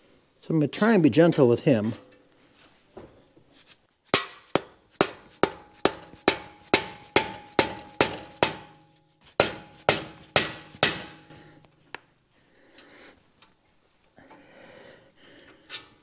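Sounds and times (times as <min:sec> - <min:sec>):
hammer blows on steel: 0:04.2 - 0:11.6.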